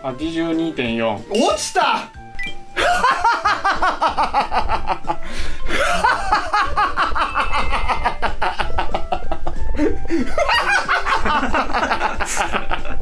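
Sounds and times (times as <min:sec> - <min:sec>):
background music with steady beat: 0:00.0 - 0:13.0
man laughing loudly: 0:02.8 - 0:13.0.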